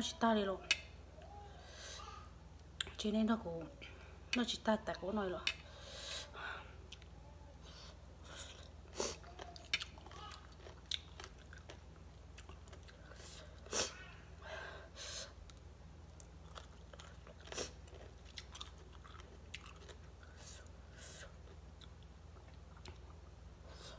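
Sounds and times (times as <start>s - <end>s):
chewing with wet mouth clicks: 8.5s - 13.2s, 15.4s - 20.4s, 21.4s - 23.4s.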